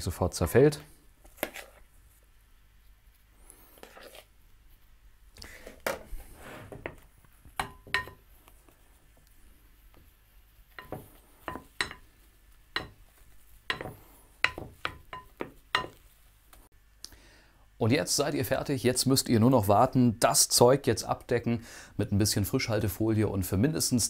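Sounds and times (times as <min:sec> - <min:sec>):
metal spoon clinking on glass bowl: 0:07.6 - 0:08.2.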